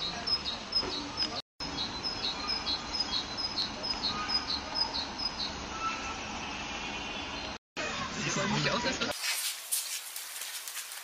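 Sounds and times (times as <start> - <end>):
small songbird singing: 0.0 - 6.1.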